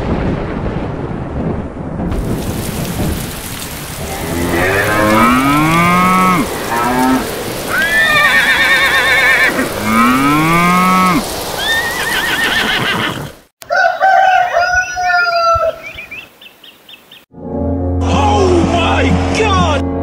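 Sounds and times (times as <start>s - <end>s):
thunder rumbling: 0.0s - 13.0s
steady rain: 0.0s - 13.5s
horses whinnying: 4.2s - 13.4s.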